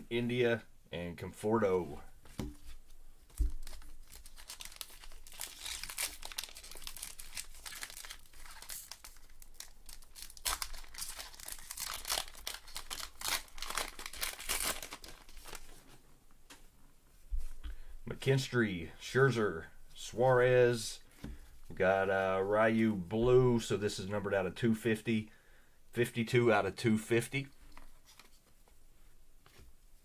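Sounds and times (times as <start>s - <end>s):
card pack wrapper crinkling and tearing: 3.3s - 15.8s.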